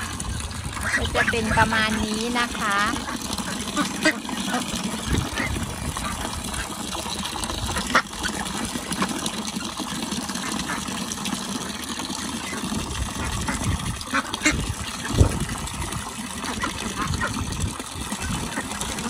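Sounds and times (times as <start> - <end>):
ducks quacking: 0.0 - 6.9, 7.6 - 9.2, 12.4 - 15.4, 16.4 - 17.5, 18.1 - 19.0
water splashing from a pipe: 0.0 - 19.0
geese honking: 0.8 - 6.7.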